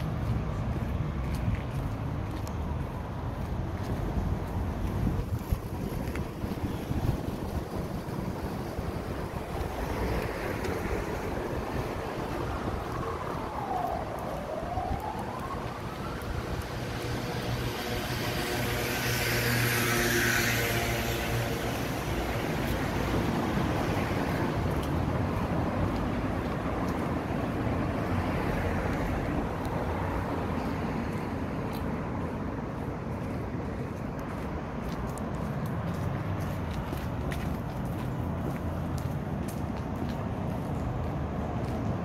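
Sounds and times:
street traffic: 0:00.0 - 0:42.0
siren sweeping: 0:11.0 - 0:18.9.

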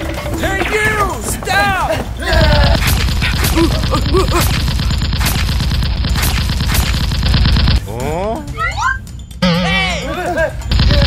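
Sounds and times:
rapid automatic gunfire: 0:02.3 - 0:07.8, 0:10.7 - 0:11.0.

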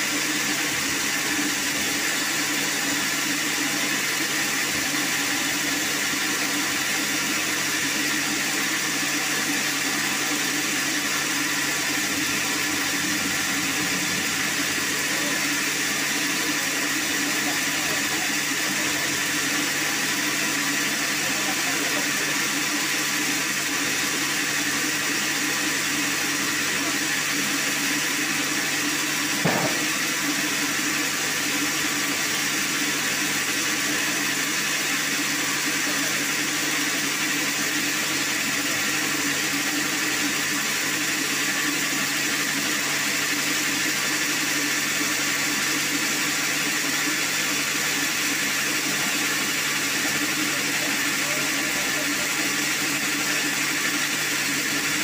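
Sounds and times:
band sawmill running: 0:00.0 - 0:55.0
knock: 0:29.4 - 0:29.9.

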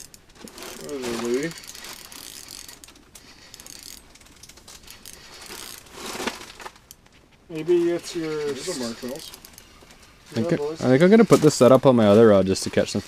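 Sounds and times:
handling rustle: 0:00.0 - 0:13.0
fishing reel clicking: 0:01.5 - 0:05.8.

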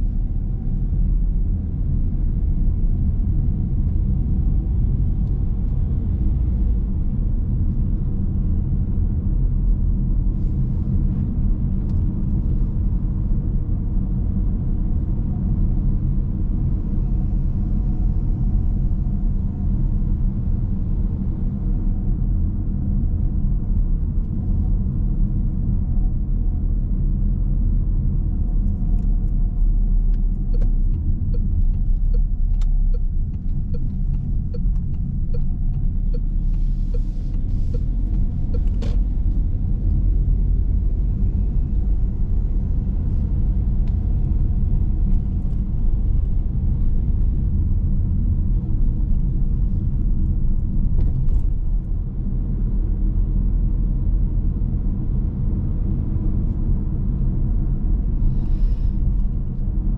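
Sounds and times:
car engine and tyres rumbling: 0:00.0 - 0:59.9
turn signal ticking: 0:30.0 - 0:39.0.

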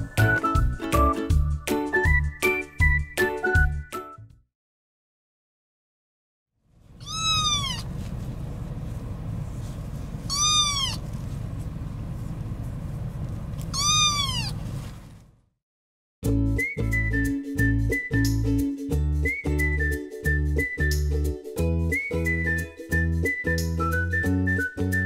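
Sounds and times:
low rumble of a moving car: 0:06.7 - 0:15.6
kitten meowing: 0:07.0 - 0:07.9, 0:10.3 - 0:11.1, 0:13.6 - 0:14.6.

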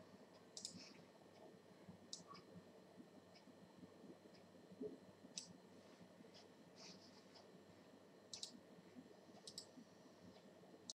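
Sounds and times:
computer mouse clicks: 0:00.6 - 0:01.0, 0:02.1 - 0:02.4, 0:05.3 - 0:05.6, 0:08.3 - 0:08.6, 0:09.4 - 0:09.7.

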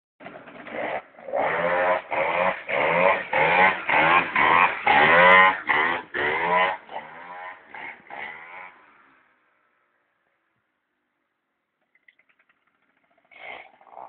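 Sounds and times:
scooter engine revving: 0:00.2 - 0:09.2.

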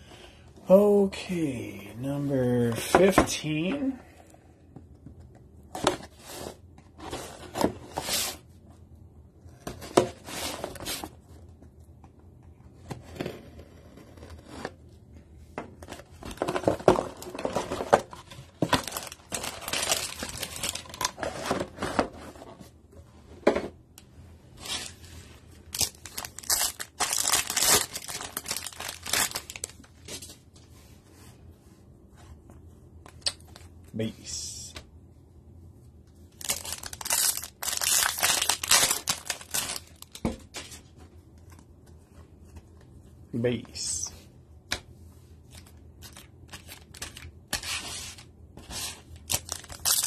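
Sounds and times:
foil packs crinkling and tearing: 0:18.8 - 0:21.2, 0:25.7 - 0:29.9, 0:36.3 - 0:40.2, 0:45.6 - 0:48.2, 0:49.1 - 0:50.0.

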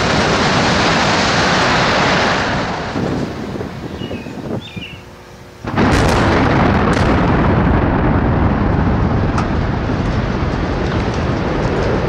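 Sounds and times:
sharp explosive cracks: 0:00.0 - 0:03.7, 0:05.6 - 0:12.0
sustained rumble: 0:05.2 - 0:12.0
loud explosive blast: 0:05.6 - 0:12.0.

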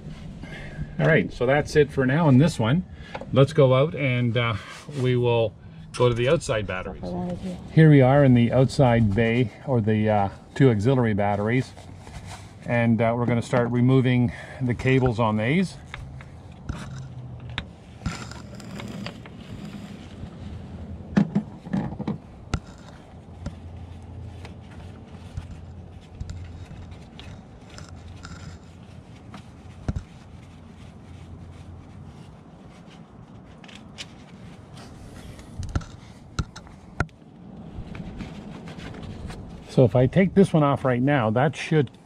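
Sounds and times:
low steady hum: 0:00.0 - 0:42.0
cables scraping on battery terminal: 0:14.8 - 0:20.6, 0:22.4 - 0:23.7, 0:25.4 - 0:30.1.

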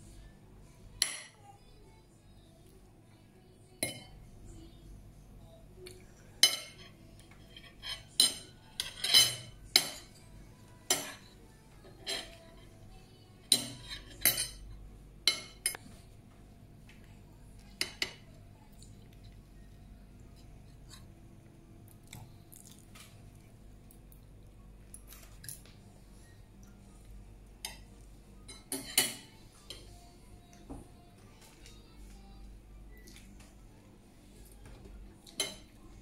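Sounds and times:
cutlery clinking on a plate: 0:06.4 - 0:12.6, 0:13.5 - 0:15.8, 0:28.5 - 0:29.8, 0:35.3 - 0:35.7.

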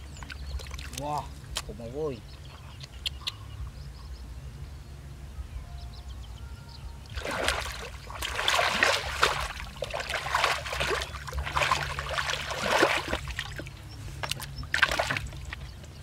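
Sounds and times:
feet wading through muddy water: 0:00.0 - 0:01.8, 0:07.1 - 0:16.0.

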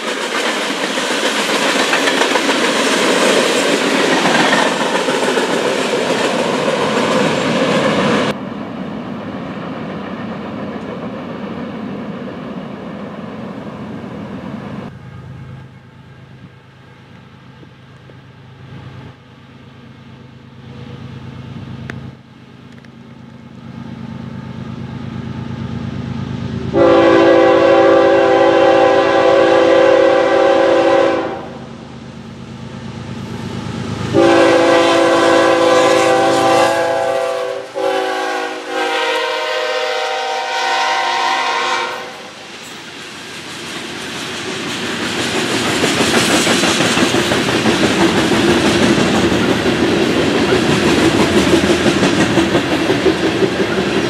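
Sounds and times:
freight cars rolling on rails: 0:00.0 - 0:27.2, 0:41.4 - 0:54.0
diesel locomotive rumble: 0:00.0 - 0:54.0
train air horn: 0:26.7 - 0:31.7, 0:34.1 - 0:42.4.

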